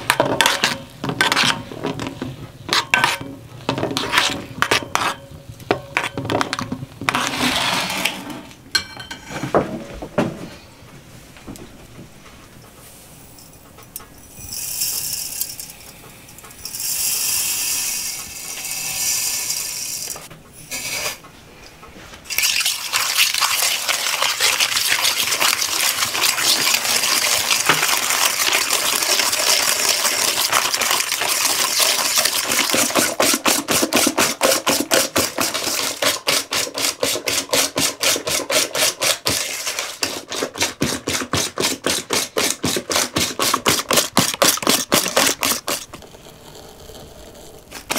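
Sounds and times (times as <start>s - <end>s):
whisking eggs in an enamel bowl: 0.0s - 6.1s, 22.3s - 46.4s
sugar pouring: 22.3s - 37.8s.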